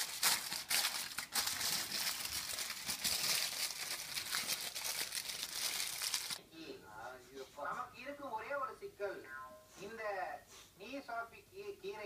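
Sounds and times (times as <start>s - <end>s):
aluminium foil rustling: 0.0s - 6.4s.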